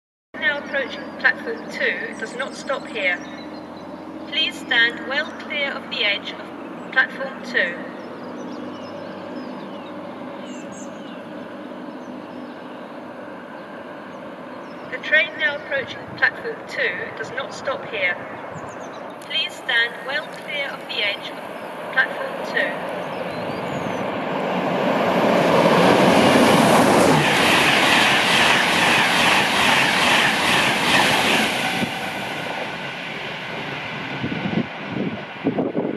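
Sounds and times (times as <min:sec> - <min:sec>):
train engines droning: 0:00.4 - 0:35.9
small birds chirping: 0:01.0 - 0:07.0, 0:07.8 - 0:15.7, 0:18.2 - 0:24.2.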